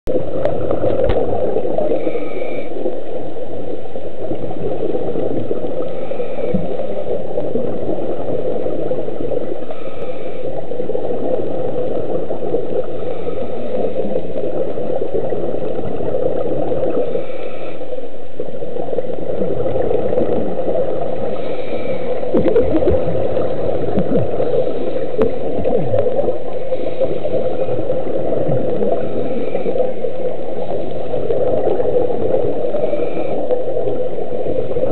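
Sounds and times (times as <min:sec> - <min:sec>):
exhaled bubbles gurgling: 0:00.1 - 0:34.9
underwater noise: 0:00.1 - 0:34.9
scuba regulator breathing: 0:01.7 - 0:03.1, 0:05.7 - 0:07.2, 0:09.4 - 0:10.8, 0:12.8 - 0:14.4, 0:16.9 - 0:18.2, 0:21.1 - 0:31.4, 0:32.5 - 0:34.7.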